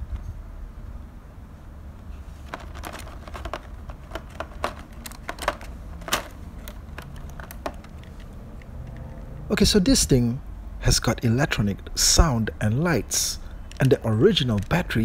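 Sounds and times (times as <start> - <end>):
plastic packaging clicking and crackling: 2.4 - 9.4, 13.2 - 15.0.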